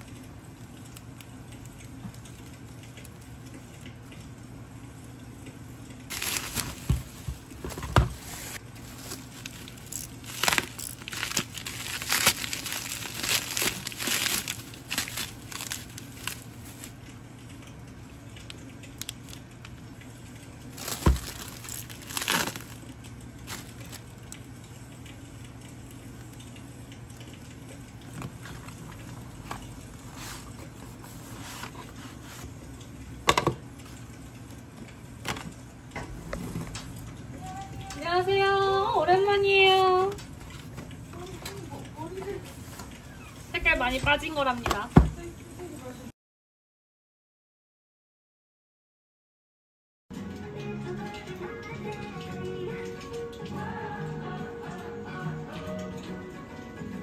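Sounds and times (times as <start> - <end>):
plastic packaging crinkling: 6.1 - 17.1, 18.4 - 19.7, 20.7 - 24.5, 28.0 - 32.5.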